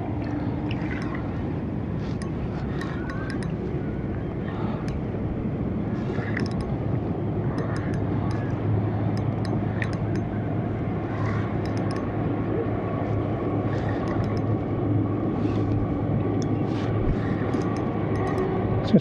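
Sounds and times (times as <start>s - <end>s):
low hum: 0.0s - 19.0s
rushing sea shore noise: 0.0s - 19.0s
faint high ticks: 2.1s - 3.6s, 6.2s - 6.8s, 7.5s - 10.4s, 11.2s - 12.2s, 13.7s - 14.7s, 15.6s - 18.6s.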